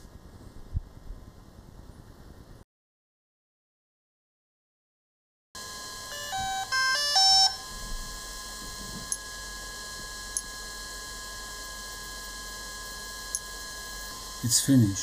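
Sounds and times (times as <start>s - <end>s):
faint electronic whine: 5.6s - 15.0s
electronic beeps changing pitch: 6.1s - 8.0s.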